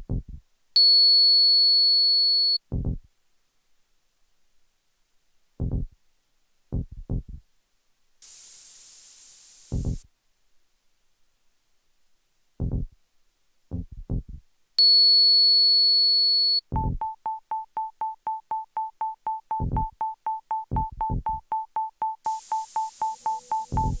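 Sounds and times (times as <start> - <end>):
low bass thumps: 0.0 - 0.4, 2.7 - 3.1, 5.6 - 6.0, 6.7 - 7.4, 9.8 - 10.0, 12.6 - 13.0, 13.7 - 14.4, 16.7 - 17.0, 19.6 - 20.0, 20.7 - 21.4, 23.7 - 24.0
rapid pulsing beep: 16.7 - 24.0
high synthesized tone: 22.2 - 24.0.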